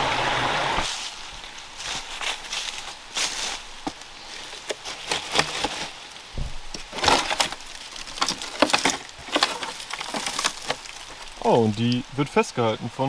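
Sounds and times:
dry twigs crackling and snapping: 0:00.9 - 0:12.2
dull thud: 0:06.3 - 0:07.2.

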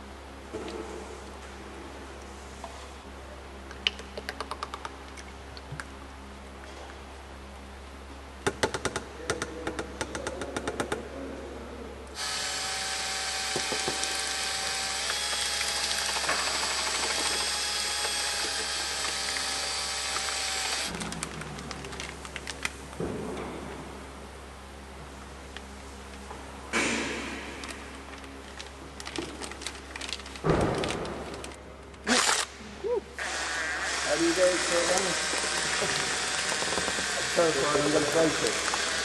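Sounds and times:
cordless drill mixing: 0:12.2 - 0:20.9, 0:33.2 - 0:39.0.

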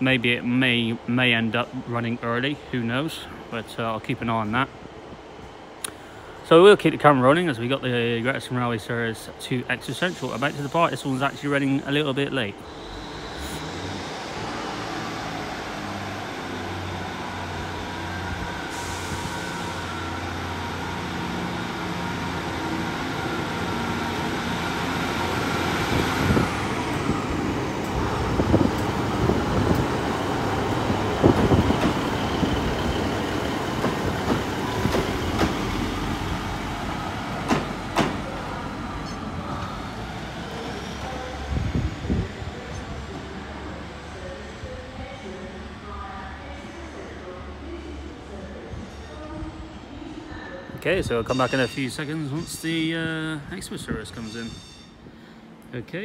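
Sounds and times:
diesel train engines: 0:00.0 - 0:56.0
wheels clacking over rail joints: 0:37.4 - 0:39.2.

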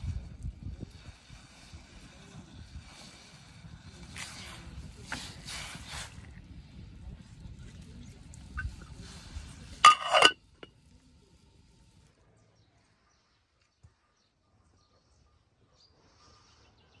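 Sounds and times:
low rumble of pot on fire: 0:00.0 - 0:14.0
metal lid clattering on pot: 0:09.8 - 0:10.7.

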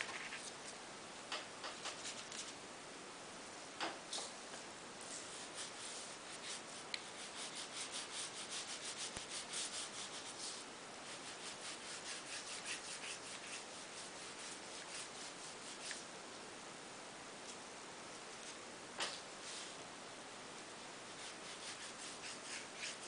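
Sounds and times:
paintbrush rubbing on paper: 0:05.0 - 0:16.1, 0:21.1 - 0:23.0.

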